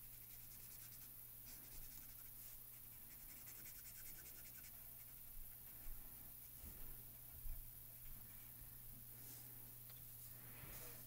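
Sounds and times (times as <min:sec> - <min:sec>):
marker scratching on card: 0:00.0 - 0:05.3.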